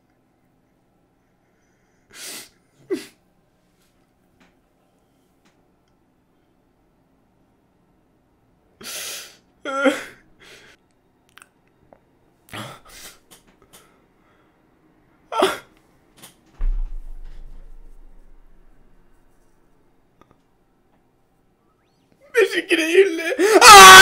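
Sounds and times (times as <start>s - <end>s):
low thump: 16.6s - 18.7s.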